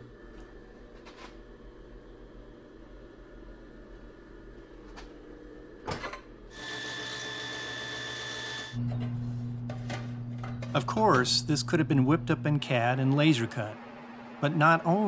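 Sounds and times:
belt sander running: 0:06.6 - 0:15.0
low steady hum: 0:08.8 - 0:15.0.

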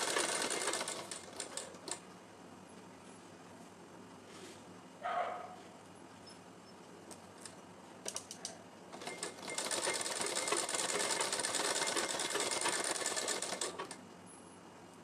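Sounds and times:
sewing machine stitching: 0:00.0 - 0:02.0, 0:09.0 - 0:14.0.

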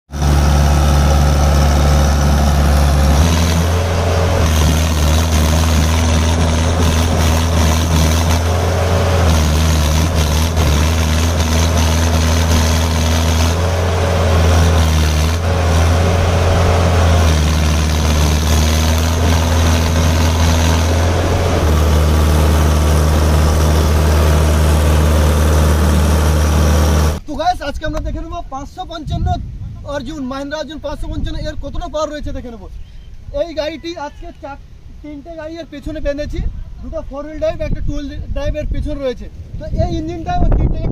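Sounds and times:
tractor diesel engine under load: 0:00.1 - 0:27.2.

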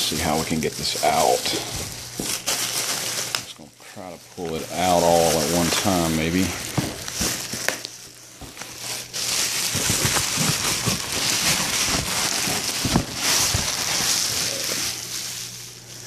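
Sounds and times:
plastic wrapping crinkling: 0:00.0 - 0:16.0.

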